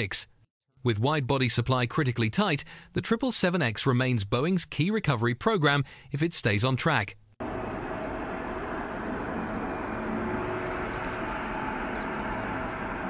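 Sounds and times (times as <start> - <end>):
airliner jet engines: 7.4 - 13.0
faint steady whine: 7.4 - 13.0.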